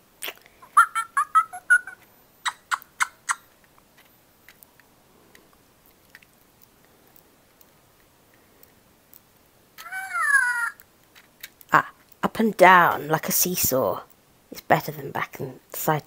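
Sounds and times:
toy electronic chirp: 0.8 - 3.5.

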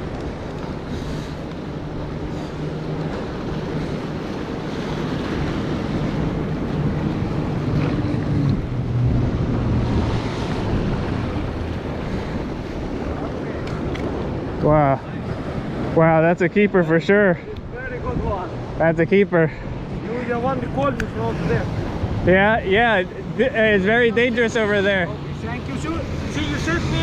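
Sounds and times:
wind buffeting microphone: 0.0 - 16.0, 17.4 - 18.9.

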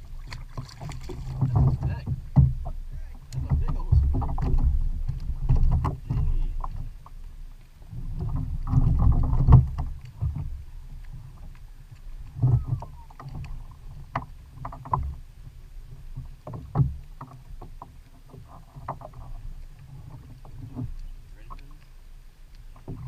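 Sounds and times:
wind on microphone: 0.0 - 7.0, 7.8 - 11.5, 12.2 - 14.2
small knocks from boat: 0.0 - 23.0
water lapping against kayak hull: 0.0 - 23.0.

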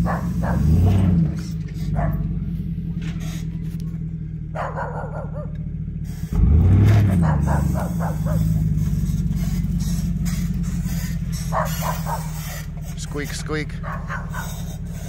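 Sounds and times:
dog barking: 0.0 - 1.1, 1.8 - 2.3, 4.5 - 5.6, 7.0 - 8.8, 11.3 - 12.7, 13.7 - 14.8
car engine revving: 0.0 - 15.0.

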